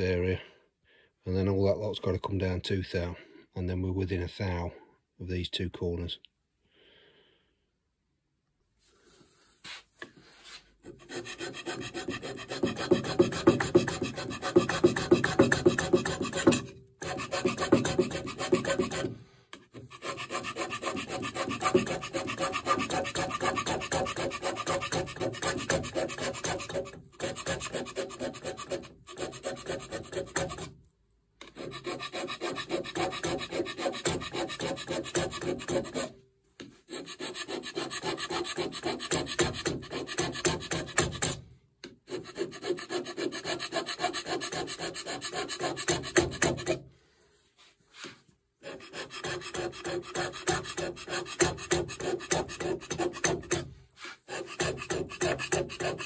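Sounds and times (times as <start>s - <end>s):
hand scraper scraping metal: 10.4s - 30.8s, 31.4s - 46.8s, 47.9s - 56.0s.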